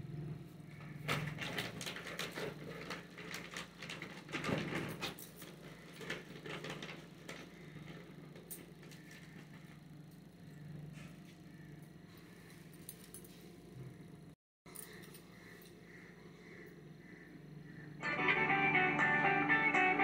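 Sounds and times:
plastic sheet crinkling: 1.2 - 8.1
steady low hum: 5.2 - 20.0.

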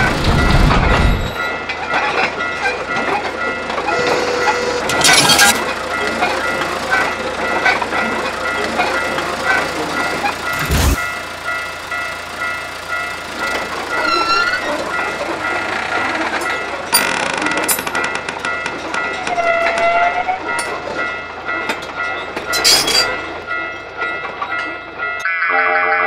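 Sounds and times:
train rumbling past: 0.0 - 25.2
high horn-like tone: 3.9 - 5.0, 25.2 - 26.0
short squeaks: 14.0 - 14.8.

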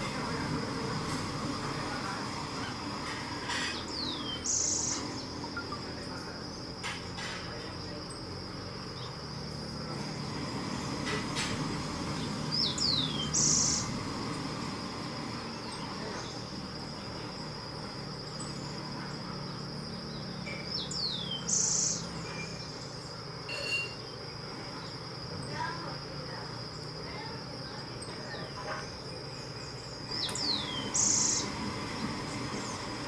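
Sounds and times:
high-pitched insect drone: 0.0 - 33.0
bird whistling call: 12.5 - 13.9, 20.7 - 22.7, 30.1 - 31.6.

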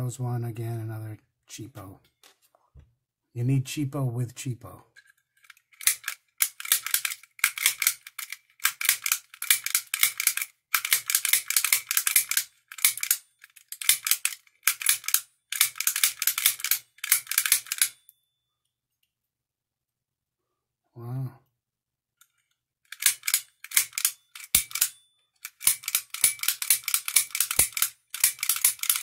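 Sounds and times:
lock pick clicking and scraping: 5.0 - 18.0, 22.2 - 29.0.

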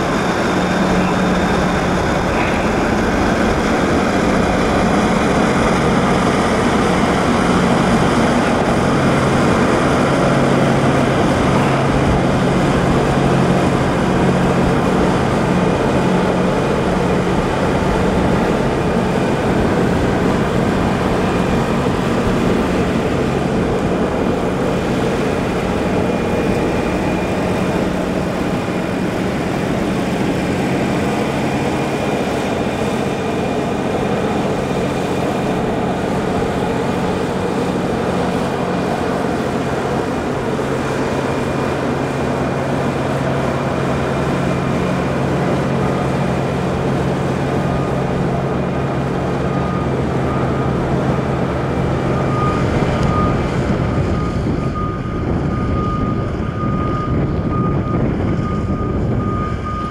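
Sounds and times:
piston aircraft engine running: 0.0 - 59.9.

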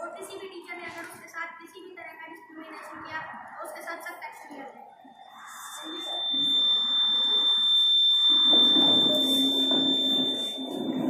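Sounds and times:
high-pitched buzzer tone: 5.2 - 11.0.

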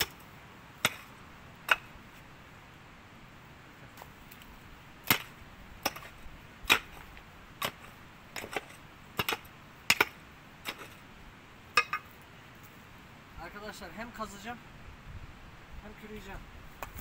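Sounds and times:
digging tool striking stony ground: 0.0 - 2.0, 4.0 - 11.0, 11.7 - 12.1.

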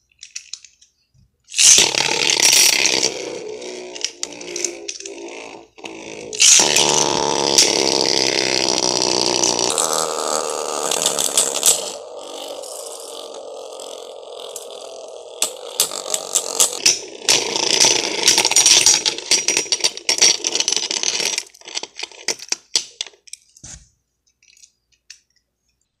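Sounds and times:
spinning tops whirring and rattling: 1.5 - 23.3.

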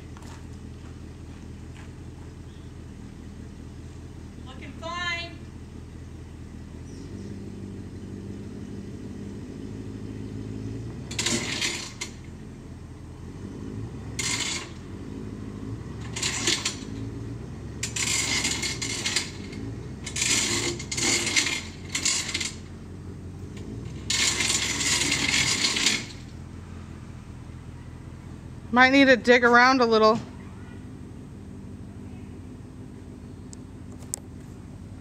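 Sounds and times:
engine idling: 0.0 - 35.0
metallic rattling and clinking: 15.9 - 22.8, 23.4 - 26.4.

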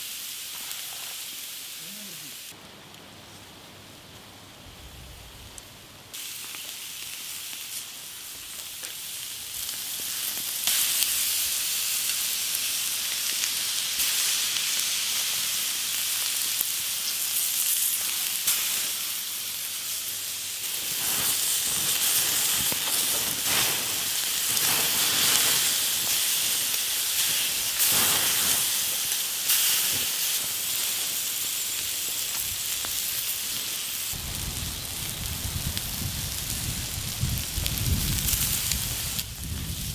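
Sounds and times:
beef sizzling on hot stones: 0.0 - 2.6, 6.1 - 39.9
fire popping and crackling: 5.4 - 14.9, 20.5 - 39.9.

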